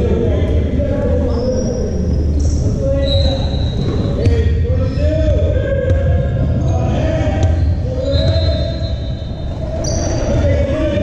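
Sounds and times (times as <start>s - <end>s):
voices calling out in hall: 0.0s - 11.0s
basketball bouncing on gym floor: 5.8s - 6.7s, 7.3s - 8.7s.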